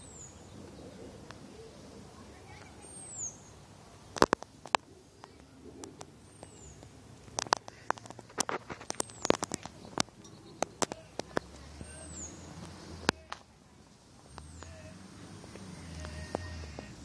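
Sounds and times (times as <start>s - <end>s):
bird chirping: 0.0s - 4.1s, 4.7s - 17.0s.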